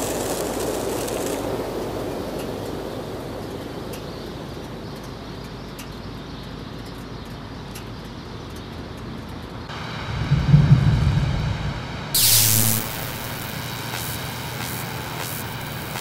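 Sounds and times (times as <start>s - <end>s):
faint ticks: 3.4s - 9.7s
low rushing rumble: 9.7s - 15.9s.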